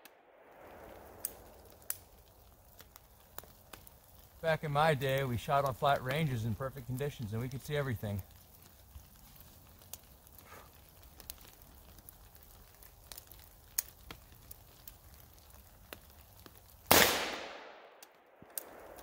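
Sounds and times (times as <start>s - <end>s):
rifle shot with echo: 16.9s - 19.0s.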